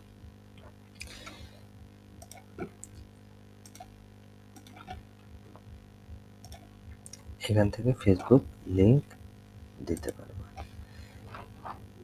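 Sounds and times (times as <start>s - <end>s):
low steady hum: 0.0s - 12.0s
mouse and keyboard clicks: 3.6s - 3.9s, 4.6s - 5.0s.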